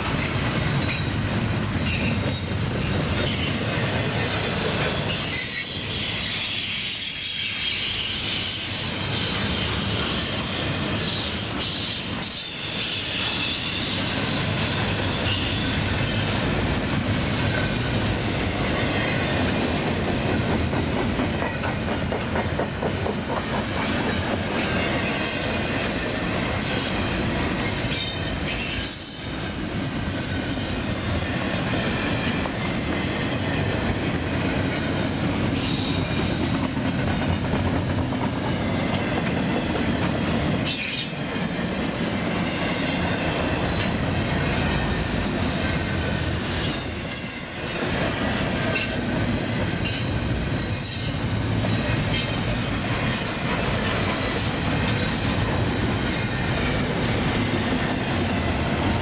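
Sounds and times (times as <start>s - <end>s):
train wheels rumbling on rail: 0.0s - 59.0s
wheel squeal: 27.9s - 31.5s, 44.9s - 55.6s, 56.8s - 57.4s.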